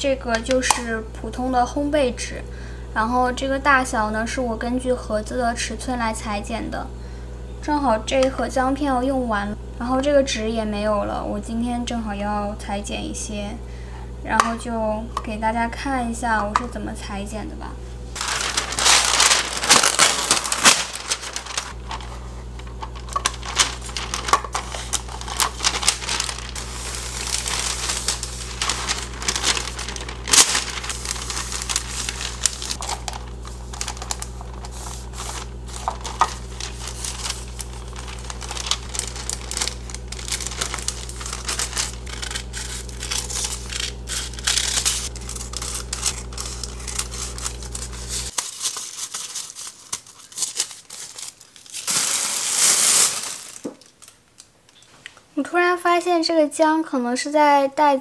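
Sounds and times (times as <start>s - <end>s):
parchment paper crackling: 18.1s - 54.5s
scissors cutting paper: 22.7s - 51.2s.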